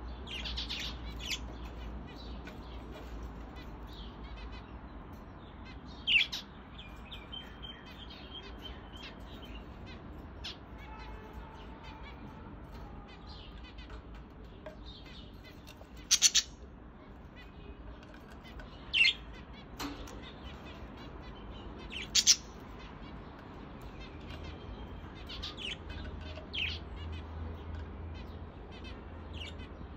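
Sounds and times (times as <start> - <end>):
budgerigars chirping: 0.2 - 4.6, 5.6 - 11.0, 12.0 - 17.7, 18.4 - 29.9.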